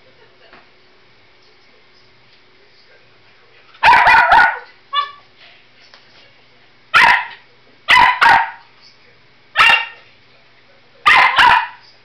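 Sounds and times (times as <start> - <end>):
dog barking: 3.8 - 5.2, 7.0 - 8.7, 9.6 - 10.0, 11.0 - 11.9
dog yipping: 3.8 - 5.2, 7.0 - 8.6, 9.6 - 10.0, 11.1 - 11.8.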